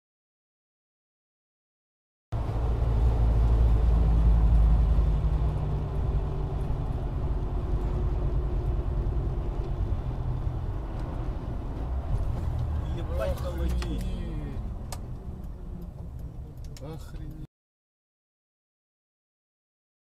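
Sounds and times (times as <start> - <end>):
car engine and tyre rumble: 2.4 - 17.5.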